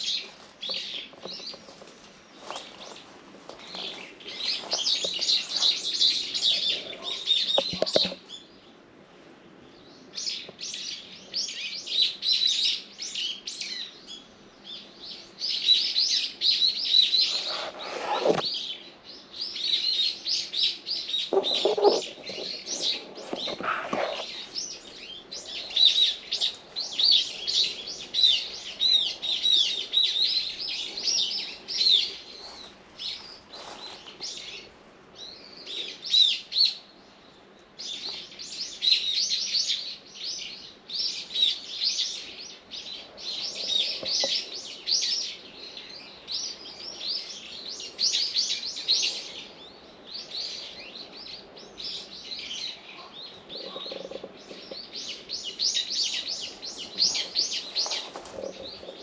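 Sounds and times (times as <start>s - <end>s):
small birds chirping: 0.0s - 8.9s, 9.6s - 59.0s.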